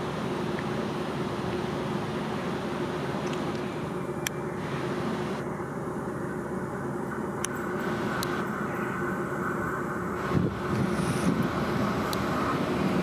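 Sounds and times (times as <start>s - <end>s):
faint constant hum: 0.0s - 13.0s
train rumbling: 6.4s - 13.0s.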